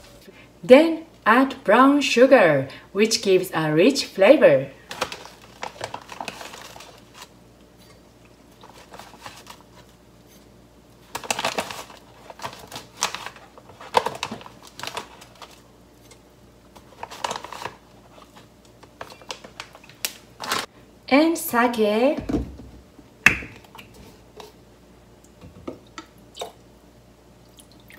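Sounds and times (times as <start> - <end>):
plastic bag rustling: 4.8 - 7.3, 8.6 - 10.0, 11.0 - 15.7, 16.7 - 20.7.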